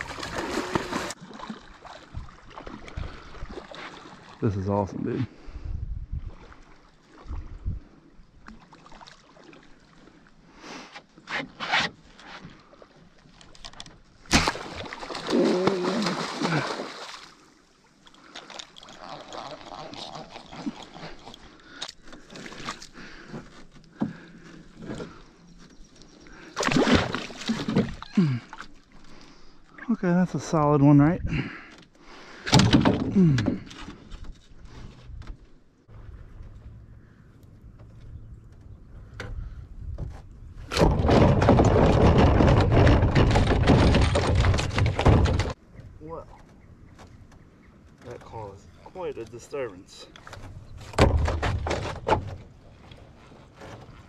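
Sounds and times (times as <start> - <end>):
fish thrashing in canoe: 0.0 - 4.4, 13.5 - 25.4, 26.5 - 29.2, 31.8 - 34.8, 40.6 - 45.6
water splashing and dripping: 14.3 - 21.0
knocks against canoe hull: 39.2 - 45.6, 50.4 - 52.5.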